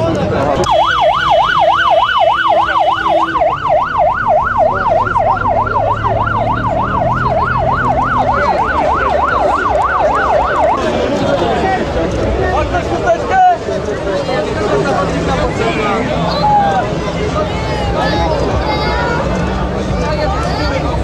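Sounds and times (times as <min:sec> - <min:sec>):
yelp siren: 0:00.6 - 0:10.9.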